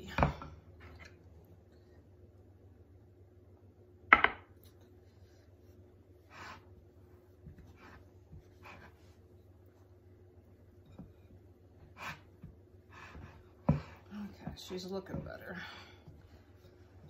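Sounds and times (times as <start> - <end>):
wooden spoon scraping dough: 4.9 - 15.4, 16.0 - 17.0.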